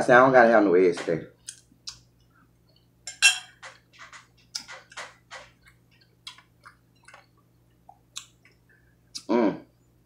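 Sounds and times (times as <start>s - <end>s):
wet mouth clicks: 1.4s - 2.0s, 5.6s - 9.3s.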